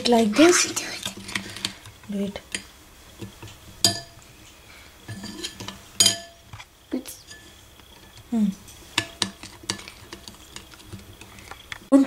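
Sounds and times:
spoon stirring thick batter: 0.0 - 11.9
spoon clinking against bowl: 3.8 - 4.2, 5.1 - 6.4.

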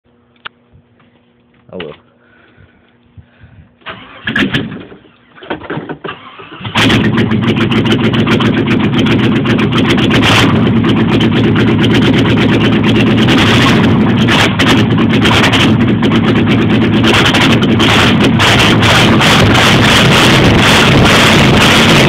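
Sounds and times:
starter motor cranking: 3.8 - 11.3
loud engine running: 6.1 - 22.0.

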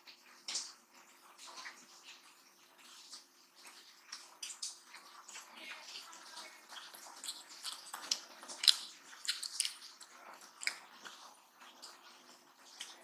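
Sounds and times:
chewing: 1.4 - 13.0
fingers squishing rice: 6.6 - 13.0.

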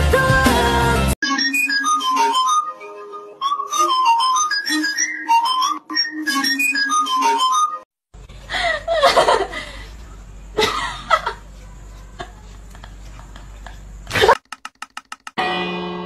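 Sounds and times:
person snickering and laughing: 8.5 - 10.0, 10.6 - 11.5, 12.1 - 14.4.

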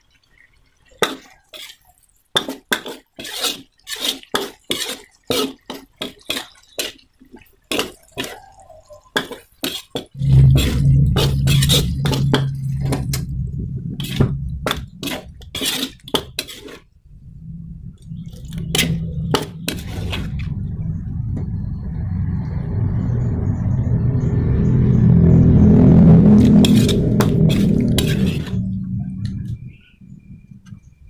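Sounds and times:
steady low hum: 10.2 - 31.0.

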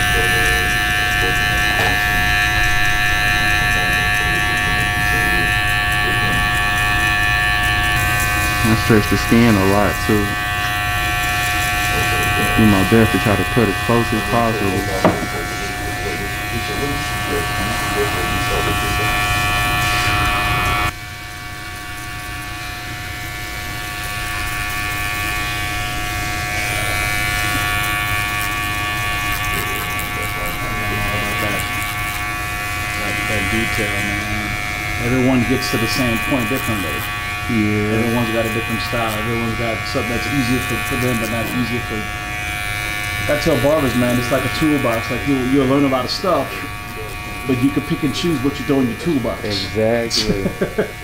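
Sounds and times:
electric hair clipper buzzing: 0.0 - 51.0.

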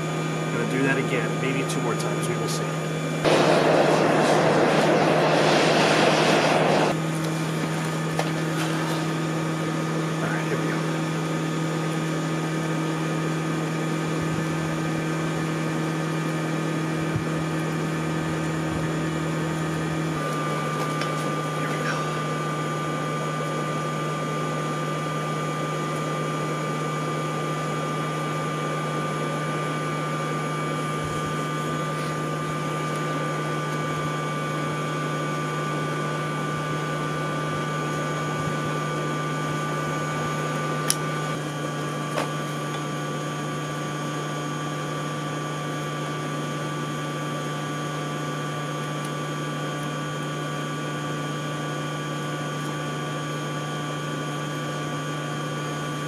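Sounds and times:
air blower humming: 0.0 - 43.4.

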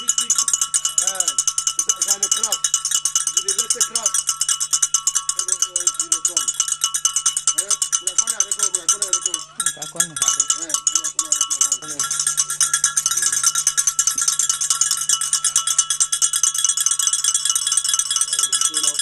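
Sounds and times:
low voices talking: 0.0 - 2.6, 5.1 - 12.3
metal bell ringing rapidly: 0.0 - 19.0.

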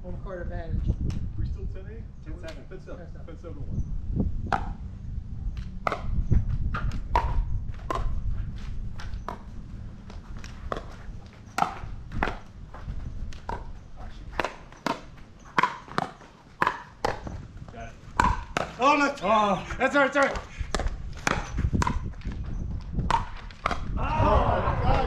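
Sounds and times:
paddles hitting plastic ball: 5.6 - 8.2, 8.9 - 12.6, 13.2 - 17.4, 18.1 - 18.8, 20.1 - 24.0.

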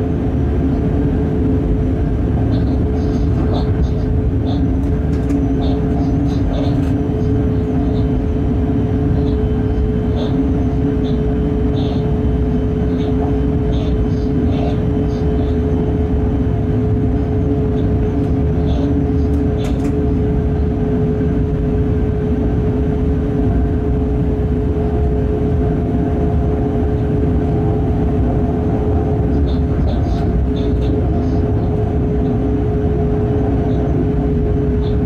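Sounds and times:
constant humming tone: 0.0 - 35.0
train rumbling drone: 0.0 - 35.0.

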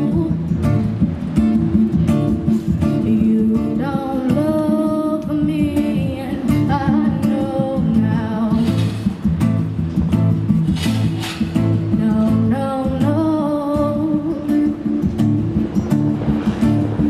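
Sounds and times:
woman singing: 0.0 - 1.0, 2.7 - 9.1, 11.8 - 15.0
acoustic guitar strumming: 0.0 - 17.0.

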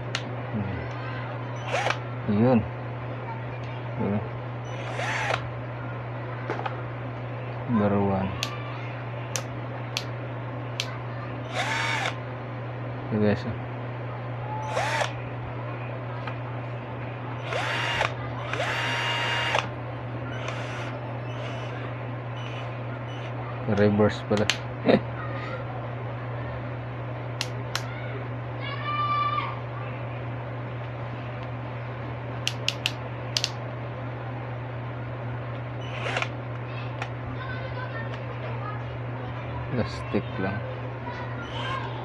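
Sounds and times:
steady low hum: 0.0 - 42.0
cordless drill motor whining: 1.6 - 2.0, 4.7 - 5.4, 11.5 - 12.2, 14.6 - 15.2, 17.4 - 19.7, 20.3 - 21.8, 22.4 - 23.3, 35.8 - 36.3.

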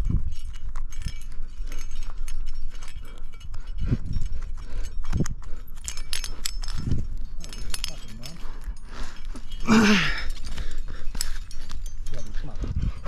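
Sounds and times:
climbing gear clinking: 0.0 - 13.0.

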